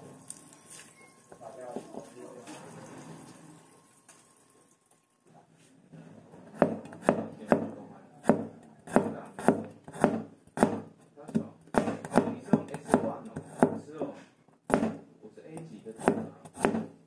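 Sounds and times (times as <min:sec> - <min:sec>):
knife chopping on cutting board: 0:06.5 - 0:13.9, 0:14.7 - 0:15.0, 0:16.0 - 0:17.0.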